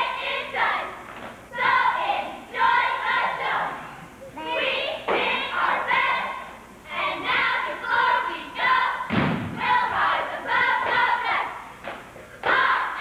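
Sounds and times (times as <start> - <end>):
cheerleaders shouting a cheer: 0.0 - 11.7, 12.4 - 13.0
heavy thud on floor: 9.1 - 9.6.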